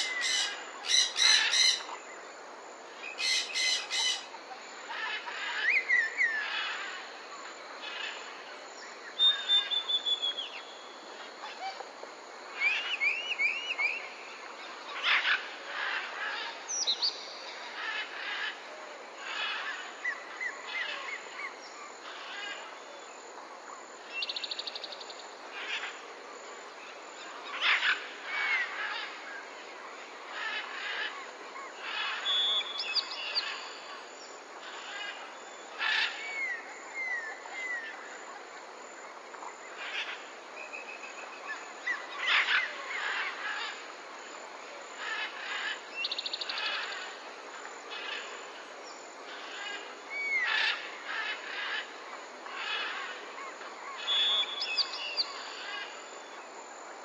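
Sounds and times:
birds calling: 0.0 - 2.0, 3.1 - 7.0
background hiss: 0.0 - 57.0.

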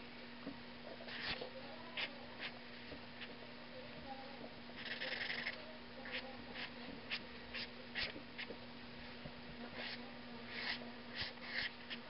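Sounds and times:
faint steady hum: 0.0 - 12.0
marker scratching on paper: 1.1 - 1.4, 4.8 - 8.5, 9.8 - 12.0.

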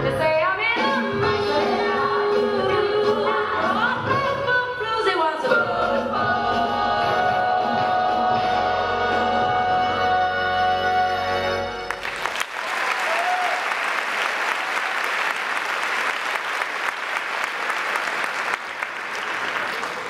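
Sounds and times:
big band music: 0.0 - 12.2
audience applause: 11.9 - 20.0.

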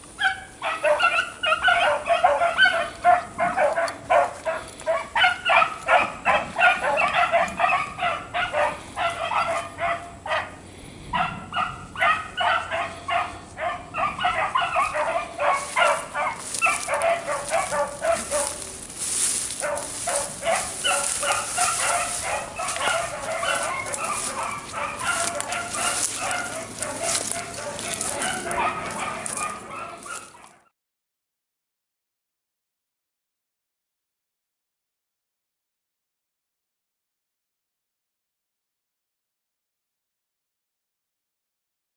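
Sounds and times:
dogs baying: 0.2 - 30.7
rustling hiss: 15.3 - 28.6.

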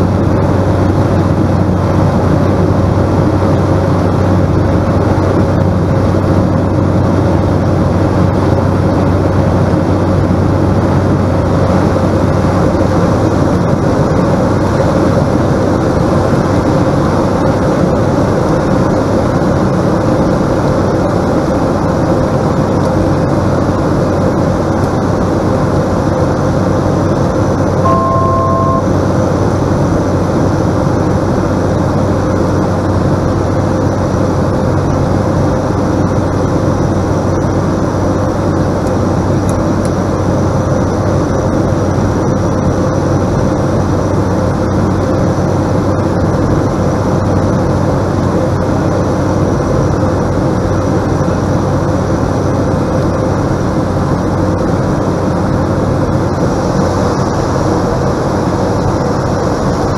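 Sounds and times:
propeller engine drone: 0.0 - 59.9
two-note electronic tone: 27.7 - 29.2.

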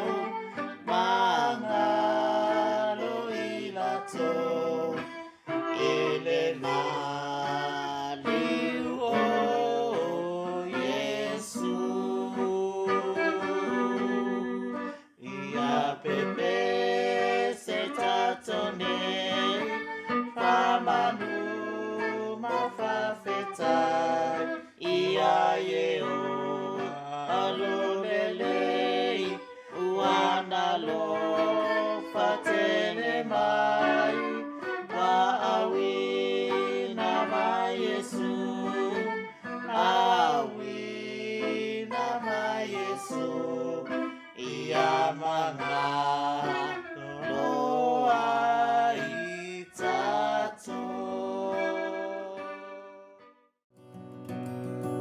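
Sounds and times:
people singing a hymn: 0.0 - 52.4
electric guitar: 53.8 - 55.0.

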